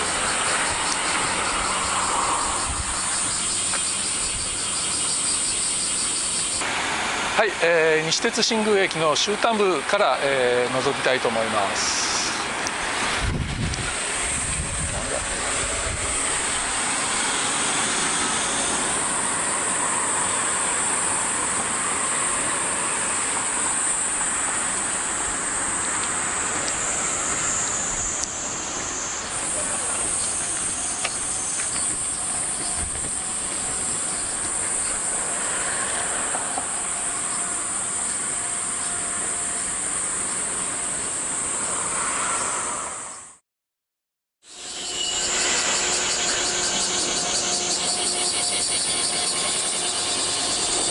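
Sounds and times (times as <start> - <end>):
cicadas buzzing: 0.0 - 43.4, 44.4 - 50.9.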